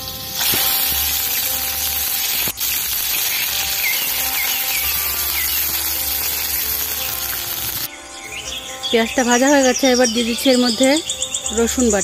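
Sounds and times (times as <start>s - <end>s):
paste sizzling in oil: 0.0s - 7.9s.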